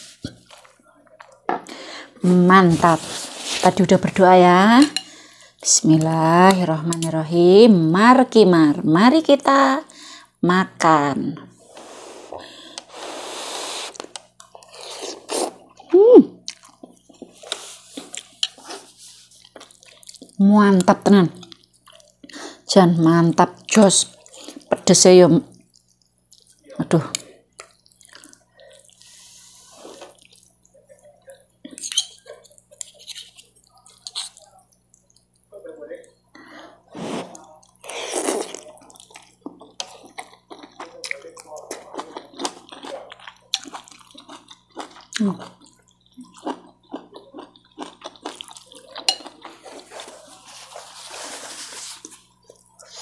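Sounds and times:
soft hissing noise: 11.6s - 14.1s, 29.0s - 30.1s
hiss: 12.9s - 14.0s
chewing and lip smacking: 15.5s - 18.6s, 19.3s - 20.4s, 25.5s - 29.0s, 38.6s - 50.3s
chewing and slurping noodles: 37.0s - 53.0s.

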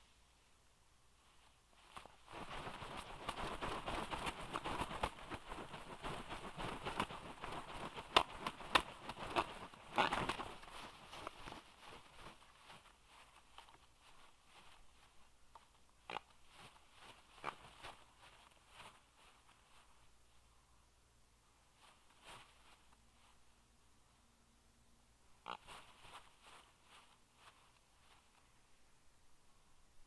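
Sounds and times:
twigs crackling and rustling: 1.2s - 20.1s, 25.4s - 28.5s
birds flapping wings: 1.8s - 15.1s, 16.1s - 19.8s, 25.5s - 28.2s.

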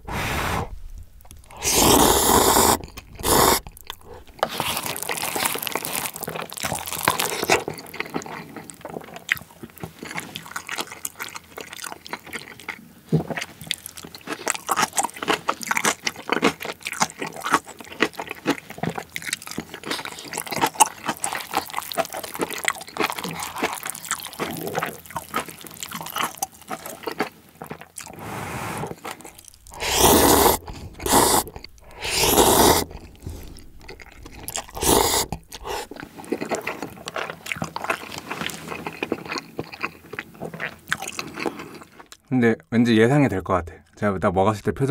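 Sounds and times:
noodle slurps: 0.0s - 0.8s, 1.4s - 5.9s, 28.0s - 39.2s
wet chewing: 0.7s - 42.3s
crunching and chewing: 1.2s - 42.4s.

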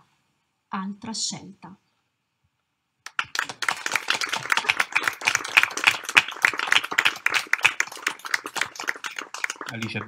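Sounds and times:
audience applauding: 3.1s - 10.0s.

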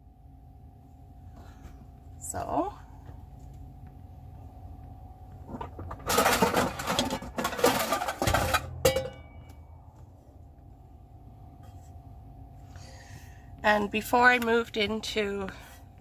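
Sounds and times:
pots and pans clattering: 5.6s - 9.5s.

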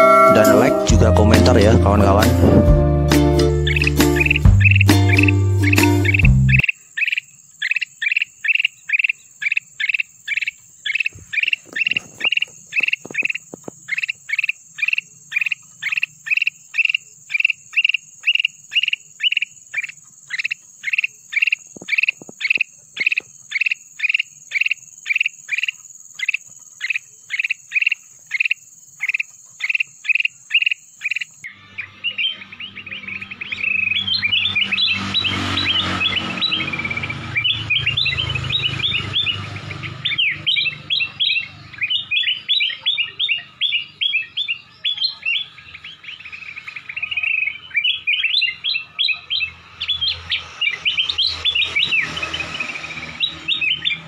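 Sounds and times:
bird singing: 0.0s - 2.2s, 3.4s - 54.0s.

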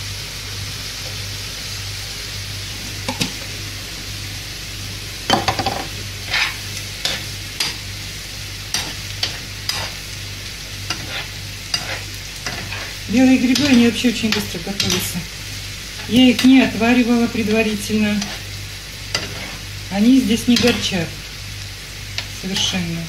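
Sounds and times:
food sizzling in a frying pan: 0.0s - 23.0s
spoon scraping and knocking pan: 5.3s - 7.9s, 8.7s - 10.0s, 10.9s - 15.1s, 19.1s - 19.6s.

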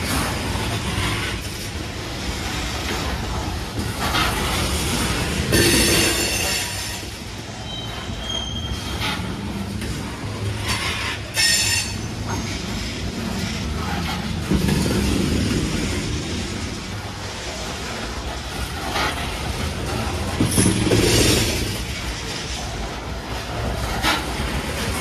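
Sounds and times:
train wheels rumbling on rail: 0.0s - 25.0s
wheel clacks: 0.0s - 25.0s
high-pitched wheel squeals: 5.9s - 9.3s, 11.4s - 12.4s.

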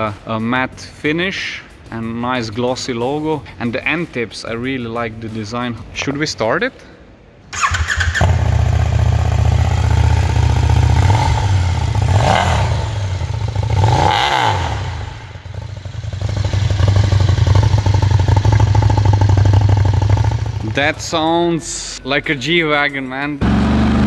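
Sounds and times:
motorcycle engine revving: 7.6s - 21.0s, 23.4s - 24.0s.

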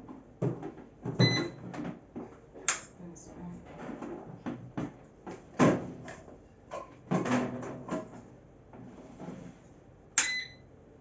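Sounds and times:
short electronic beep: 10.2s - 10.6s.

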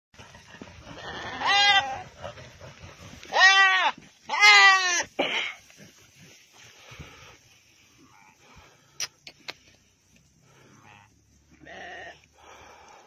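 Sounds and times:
goat bleating loudly: 1.0s - 2.0s, 3.3s - 5.1s, 11.6s - 12.2s.

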